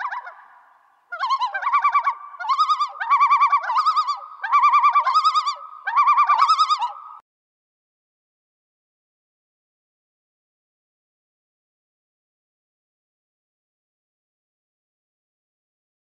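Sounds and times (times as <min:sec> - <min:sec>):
bird-like warbling whistle: 0:00.0 - 0:07.2.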